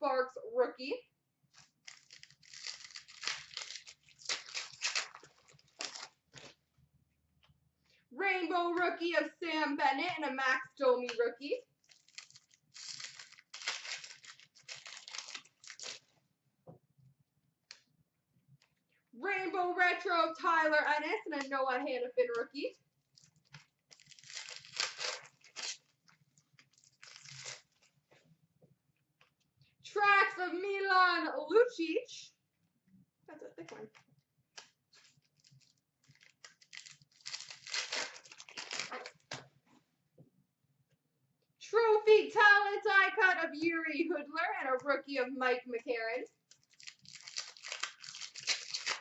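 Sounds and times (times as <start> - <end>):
wrapper tearing and crinkling: 1.5 - 6.6, 11.8 - 16.1, 23.1 - 27.9, 34.6 - 39.4, 46.5 - 49.0.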